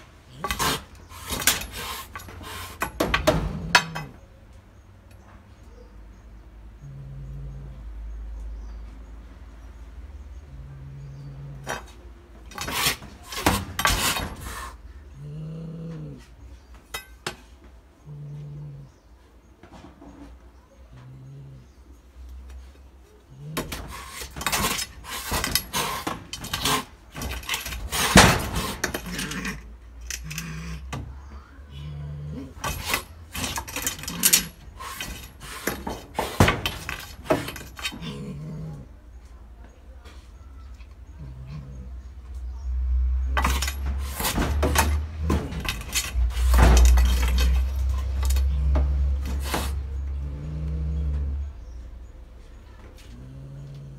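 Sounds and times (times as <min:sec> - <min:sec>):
cat growling: 0:06.8 - 0:08.1, 0:10.4 - 0:12.1, 0:12.8 - 0:16.5, 0:18.0 - 0:19.1, 0:20.8 - 0:22.0, 0:28.6 - 0:34.7, 0:37.6 - 0:39.3, 0:40.8 - 0:42.4, 0:47.0 - 0:52.0, 0:52.9 - 0:53.9.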